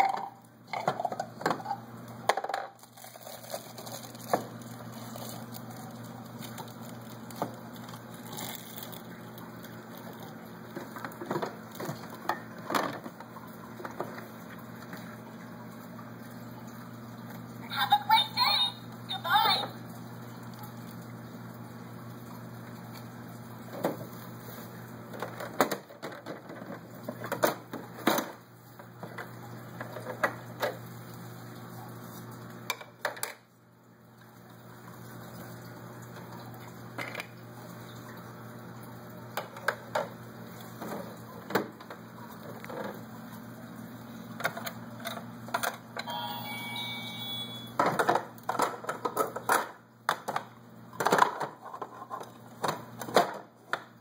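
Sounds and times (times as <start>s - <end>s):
electronic beeping tones: 46.0s - 47.8s.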